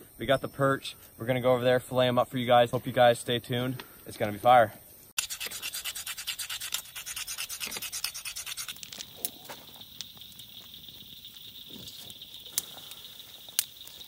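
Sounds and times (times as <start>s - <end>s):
insect chirring: 4.9s - 14.0s
fast back-and-forth scraping: 5.2s - 13.2s.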